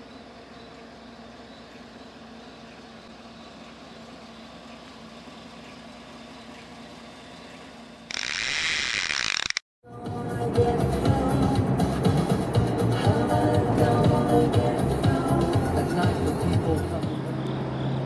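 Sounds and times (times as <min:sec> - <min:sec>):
film projector sound effect: 0:00.7 - 0:09.6.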